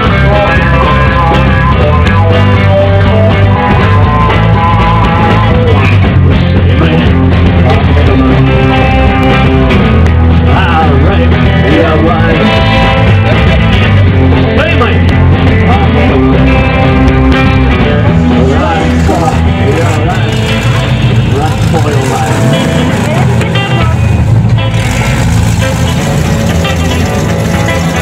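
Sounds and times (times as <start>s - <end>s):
person singing: 0.0s - 5.9s, 6.7s - 9.8s, 10.5s - 13.4s, 14.5s - 23.9s
rock and roll song: 0.0s - 28.0s.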